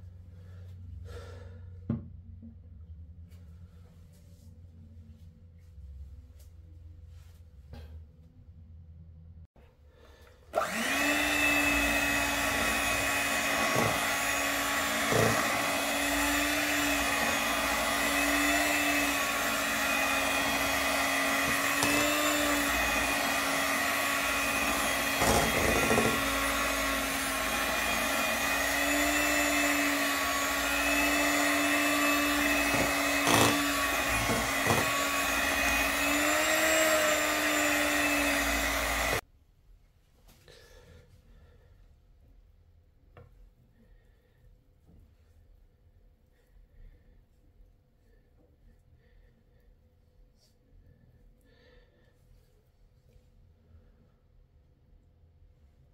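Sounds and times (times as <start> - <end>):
electric hand mixer whirring: 10.5 - 39.2.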